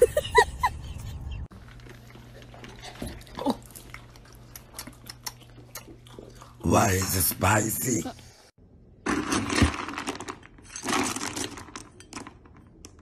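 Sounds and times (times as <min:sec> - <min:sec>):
dog licking lips and chewing: 0:01.8 - 0:06.5.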